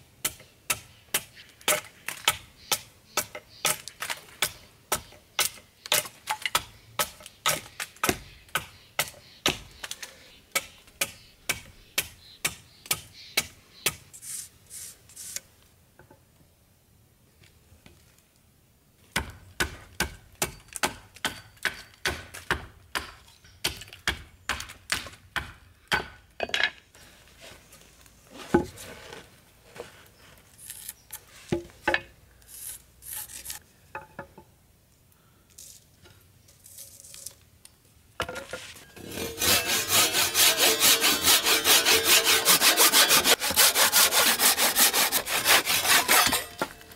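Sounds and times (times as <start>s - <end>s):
hatchet chopping wood: 0.2s - 9.7s, 19.1s - 26.2s.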